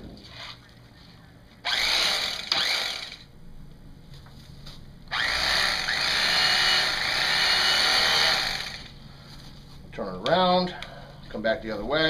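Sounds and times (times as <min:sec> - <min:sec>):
electric knife cutting foam: 0:01.6 - 0:03.3, 0:05.1 - 0:08.9.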